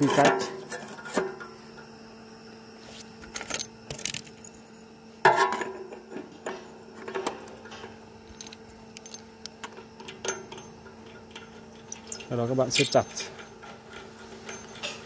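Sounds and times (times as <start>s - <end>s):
metallic clinks and knocks: 8.3s - 15.0s.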